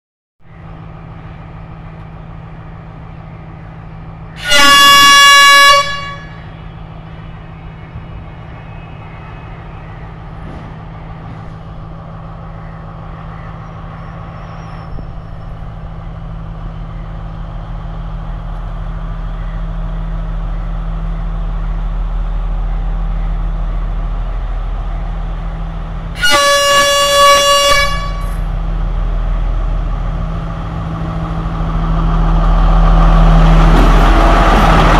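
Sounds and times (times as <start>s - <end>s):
train horn blast: 4.4s - 6.6s, 26.2s - 28.5s.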